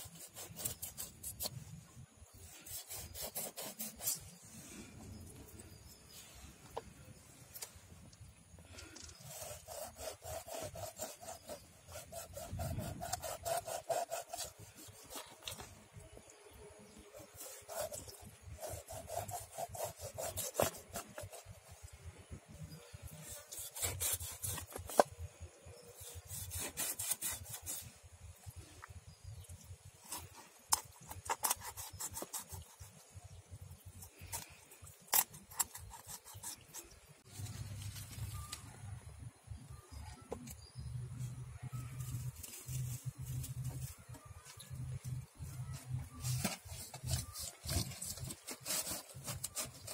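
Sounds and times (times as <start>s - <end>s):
knife rasping through fish scales: 0.0s - 1.6s, 2.5s - 4.4s, 9.2s - 15.6s, 17.1s - 21.7s, 23.2s - 25.1s, 26.0s - 27.9s, 34.0s - 37.0s.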